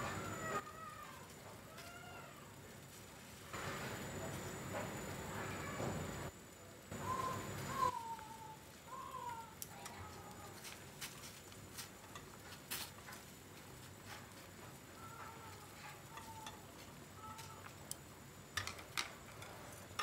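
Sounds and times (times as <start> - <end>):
chopsticks clicking against pot: 15.9 - 20.0.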